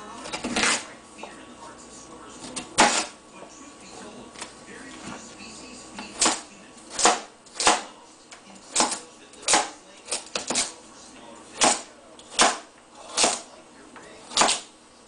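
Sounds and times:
knife chopping on plastic board: 0.2s - 0.9s, 2.4s - 3.2s, 6.0s - 8.0s, 8.7s - 10.8s, 11.6s - 13.5s, 14.2s - 14.7s.

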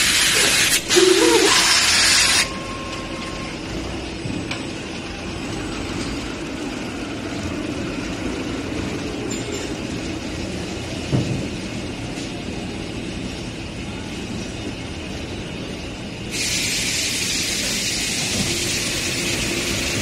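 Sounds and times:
loud air hiss: 0.0s - 2.5s, 16.2s - 20.0s
conveyors and machinery running: 0.0s - 20.0s.

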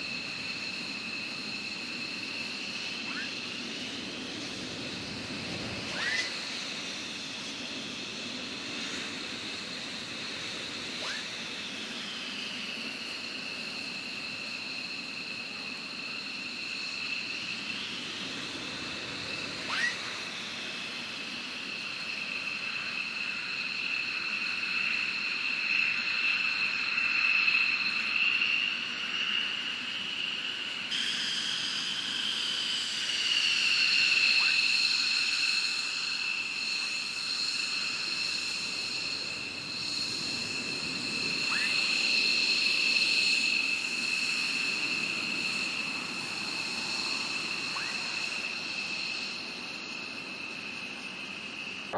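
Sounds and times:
jet engines idling: 25.2s - 51.9s.

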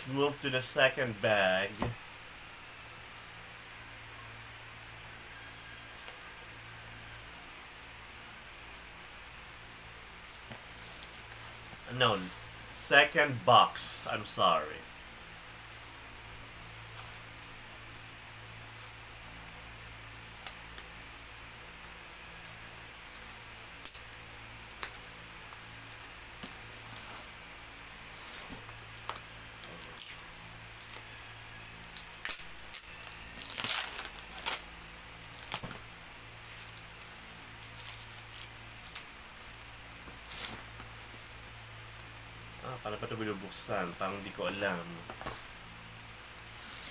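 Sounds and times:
tape tearing and crinkling: 22.3s - 39.2s, 40.1s - 40.9s, 46.4s - 46.9s.

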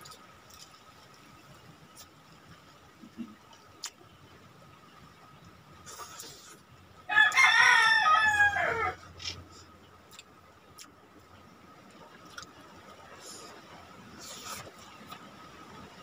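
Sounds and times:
rooster crowing: 7.1s - 9.0s.

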